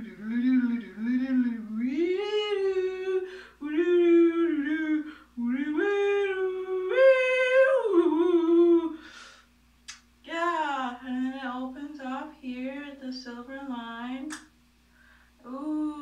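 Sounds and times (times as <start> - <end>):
woman humming: 0.0 - 9.0, 15.4 - 16.0.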